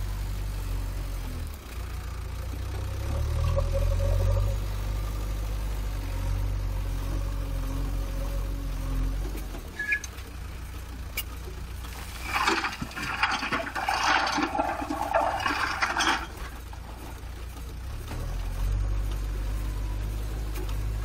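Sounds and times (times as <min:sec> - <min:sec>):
diesel engine running: 0:00.0 - 0:21.0
stones and soil clattering: 0:11.8 - 0:17.5.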